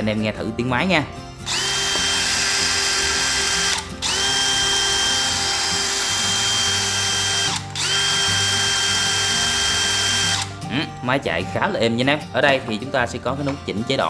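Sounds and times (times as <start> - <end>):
cordless drill whining: 1.5 - 10.6.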